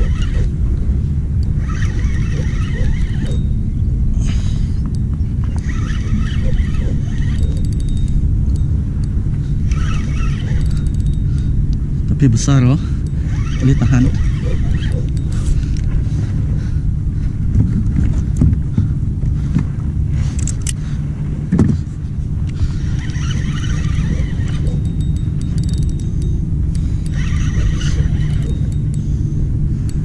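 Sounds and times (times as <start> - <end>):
fishing reel cranking: 0.0 - 0.6, 1.4 - 3.7, 4.3 - 16.2, 22.5 - 30.0
reel clicks: 0.0 - 0.6, 1.4 - 3.6, 4.8 - 11.8, 13.0 - 16.3, 20.2 - 20.8, 22.4 - 30.0
higher reel whirring: 0.0 - 30.0
low rumble: 0.0 - 30.0.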